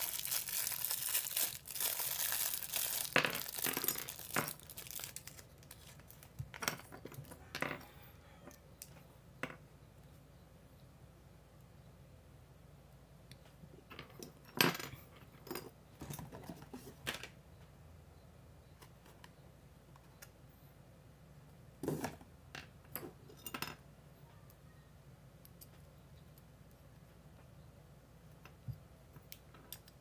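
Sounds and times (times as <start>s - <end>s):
plastic bag crinkling: 0.0s - 6.6s.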